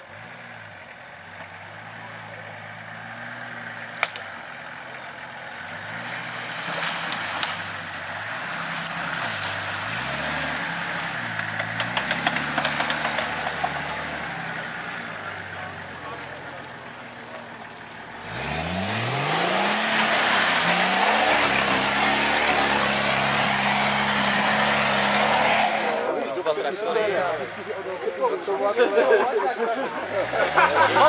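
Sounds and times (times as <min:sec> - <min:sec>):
off-road engine revving: 0:00.0 - 0:31.0
sharp crack: 0:03.8 - 0:04.5, 0:08.6 - 0:14.4
ticks and knocks: 0:11.4 - 0:14.0.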